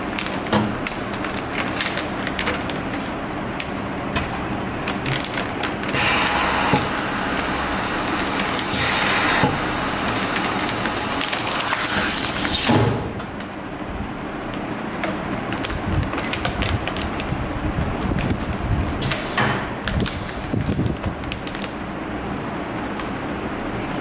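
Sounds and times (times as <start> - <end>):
foil bag crinkling: 0.0 - 3.3, 4.8 - 6.5, 9.9 - 12.6, 14.4 - 18.6, 19.8 - 21.8
vacuum sealer hissing: 5.9 - 12.9.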